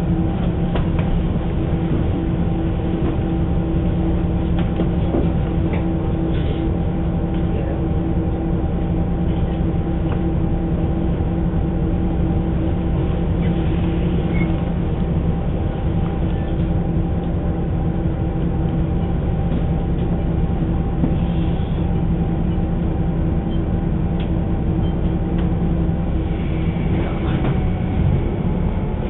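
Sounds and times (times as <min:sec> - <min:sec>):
diesel engine idling: 0:00.0 - 0:29.0.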